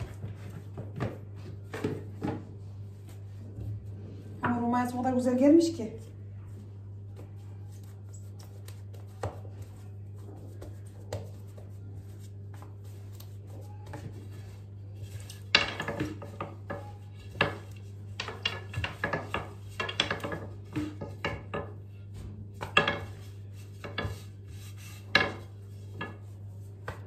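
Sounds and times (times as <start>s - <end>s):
rolling pin knocking and rubbing: 8.8s - 27.0s.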